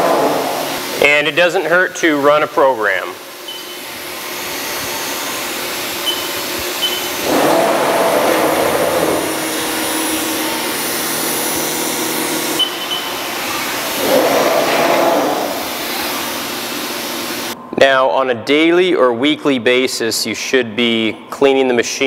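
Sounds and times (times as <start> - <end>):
cnc router machine rushing: 0.0 - 1.0, 4.1 - 17.6
axis drives whining: 3.4 - 17.6.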